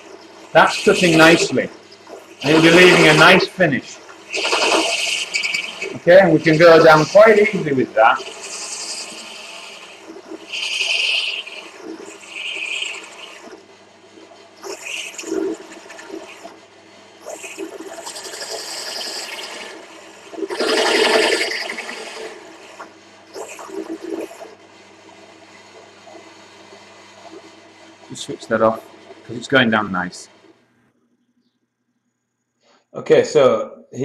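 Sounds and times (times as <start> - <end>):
drill motor humming: 0.0 - 13.6, 17.2 - 30.4.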